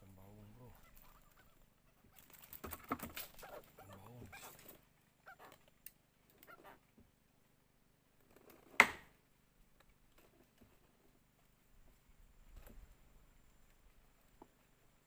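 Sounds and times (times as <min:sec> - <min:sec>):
handling clicks and rustles: 0:00.8 - 0:06.6.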